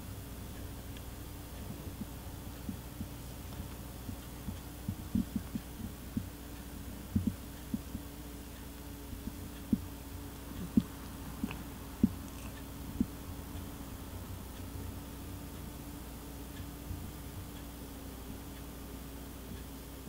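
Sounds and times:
cat purring: 0:01.1 - 0:19.5
cat licking fur: 0:09.2 - 0:14.7.

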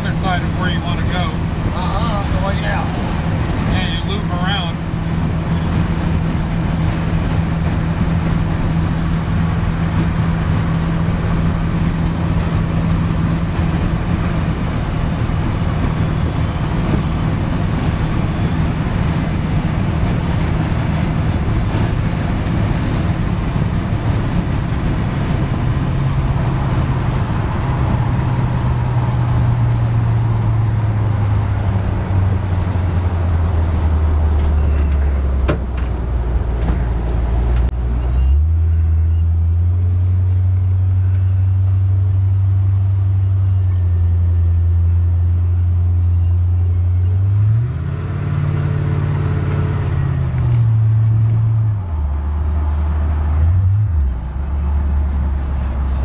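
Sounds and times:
car engine and tyre drone: 0:00.0 - 0:56.0.

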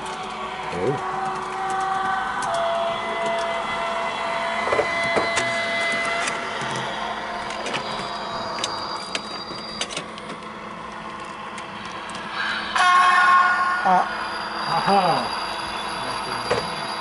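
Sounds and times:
model train electric whine: 0:00.0 - 0:17.0
high thin tone: 0:02.5 - 0:10.2, 0:12.3 - 0:17.0.

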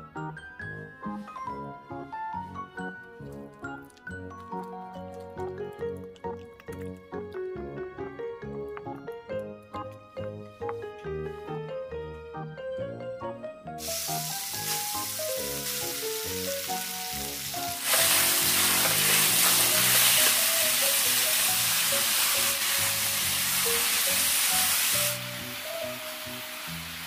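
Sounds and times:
background music: 0:00.0 - 0:27.0
meat sizzling in a pan: 0:13.8 - 0:27.0.

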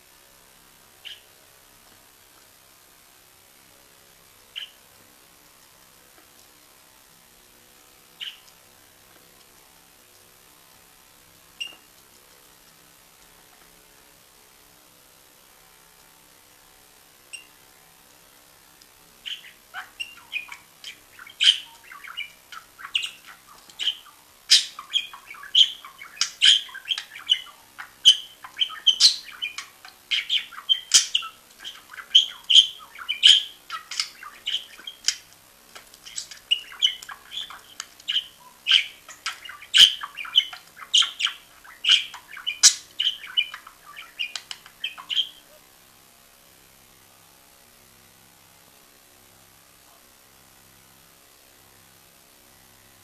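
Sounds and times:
budgerigar warbling: 0:19.2 - 0:35.3, 0:36.0 - 0:45.6.

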